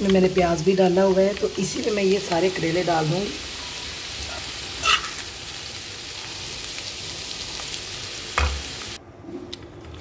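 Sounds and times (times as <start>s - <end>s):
vegetables sizzling in oil: 0.0s - 9.0s.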